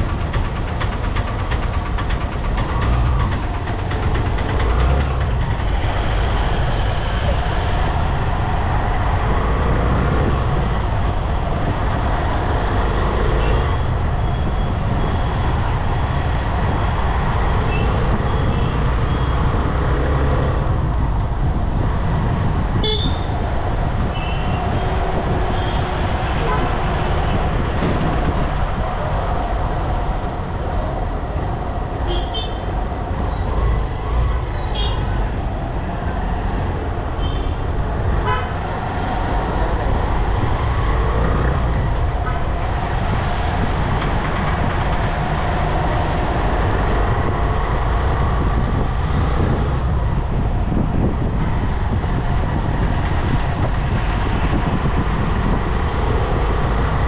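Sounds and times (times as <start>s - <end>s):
engine and tyre rumble: 0.0s - 57.0s
vehicle horn toots: 22.8s - 23.3s, 38.2s - 38.6s.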